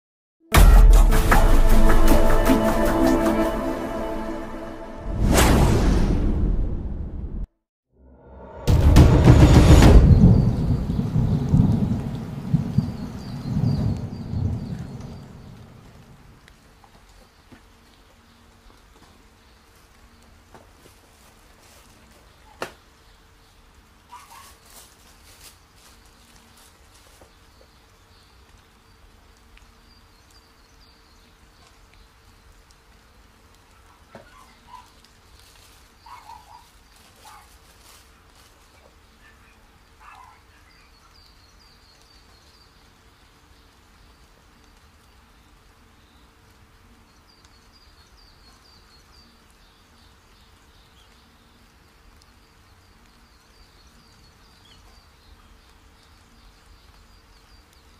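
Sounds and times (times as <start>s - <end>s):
tissue paper rustling: 24.2s - 27.3s, 35.3s - 38.8s.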